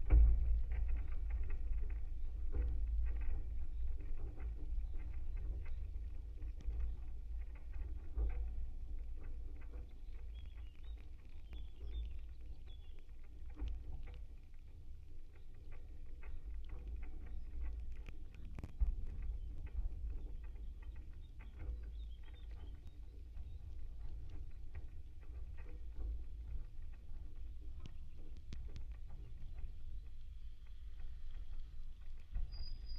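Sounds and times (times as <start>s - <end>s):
low rumble in wooden pole: 0.0s - 32.9s
small creaks and ticks: 0.0s - 32.9s.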